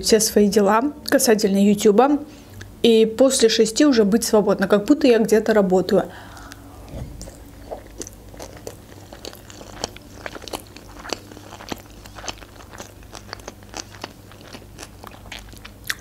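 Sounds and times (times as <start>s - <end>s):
close chewing with mouth clicks: 6.4s - 16.0s.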